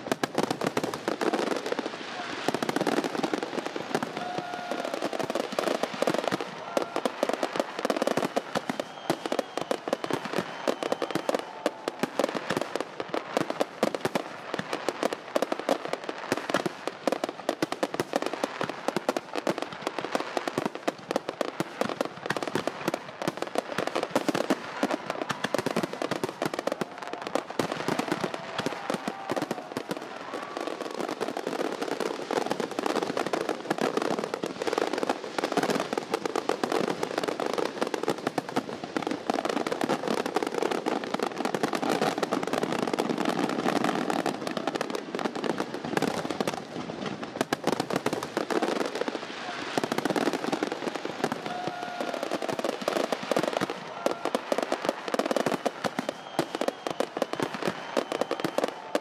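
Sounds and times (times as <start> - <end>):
fireworks bangs and crackles: 0.0 - 59.0.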